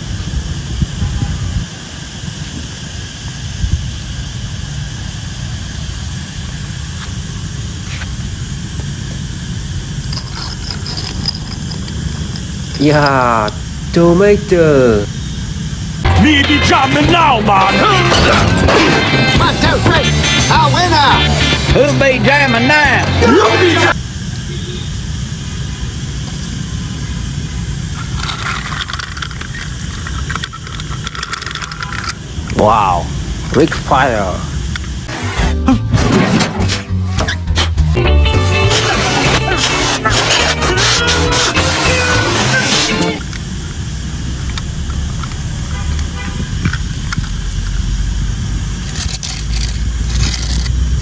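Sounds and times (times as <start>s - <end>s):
wind buffeting microphone: 0.0s - 4.1s
toy truck scraping on stone tiles: 10.0s - 13.6s, 27.9s - 32.2s, 38.6s - 43.4s, 48.8s - 51.0s.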